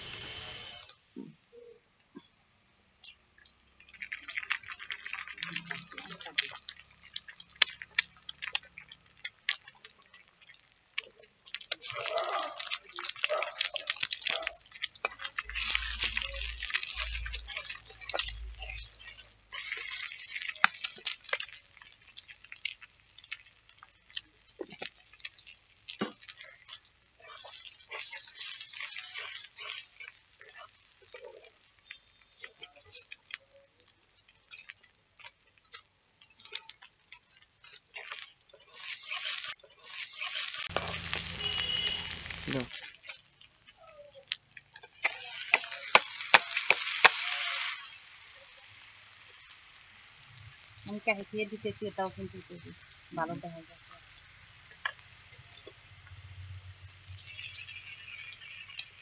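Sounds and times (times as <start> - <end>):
eggs sizzling in oil: 0.0 - 59.0
metal spatula scraping a pan: 14.6 - 21.5, 26.4 - 30.6, 37.4 - 42.4, 54.8 - 59.0.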